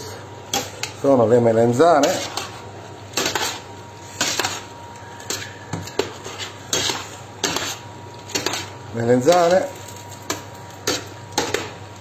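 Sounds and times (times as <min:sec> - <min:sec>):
utensil scraping metal pot: 0:01.8 - 0:09.7.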